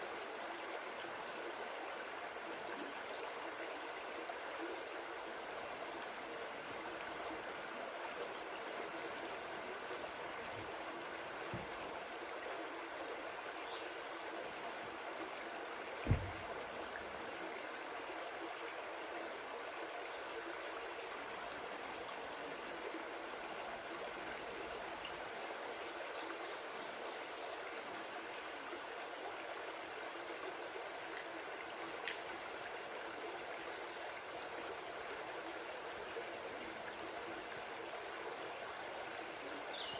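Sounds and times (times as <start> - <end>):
creek babbling over stones: 0.0 - 39.9
low thump: 11.5 - 11.8, 16.0 - 16.4.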